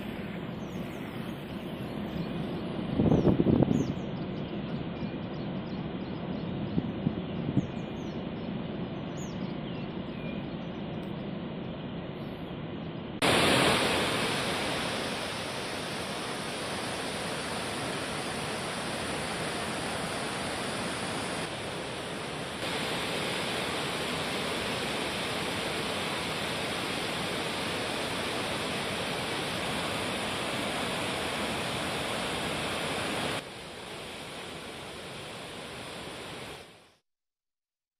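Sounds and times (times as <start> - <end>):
floodwater rushing through spillway: 13.2 - 36.8.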